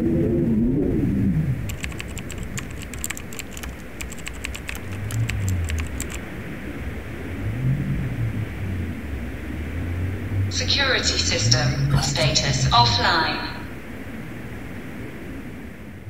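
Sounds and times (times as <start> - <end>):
keyboard key clicks: 1.7 - 6.2.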